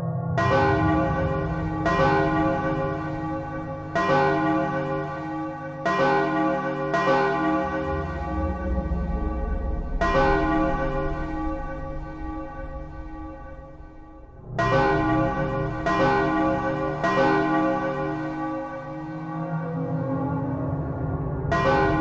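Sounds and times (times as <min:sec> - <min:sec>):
low hum: 0:00.0 - 0:05.2, 0:07.8 - 0:16.8
deep bell bong: 0:00.4 - 0:19.4, 0:21.5 - 0:22.0.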